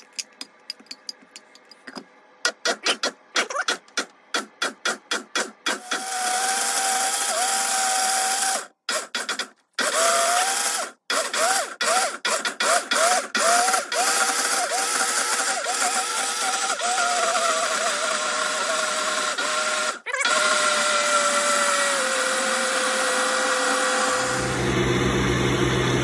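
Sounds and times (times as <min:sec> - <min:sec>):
blender motor whining: 0:05.7 - 0:26.0.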